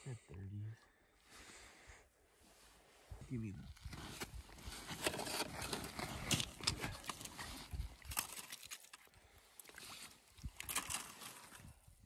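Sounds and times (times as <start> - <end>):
scrapes and knocks on ice: 3.8 - 9.0, 9.7 - 11.7
water splashing: 7.0 - 11.6.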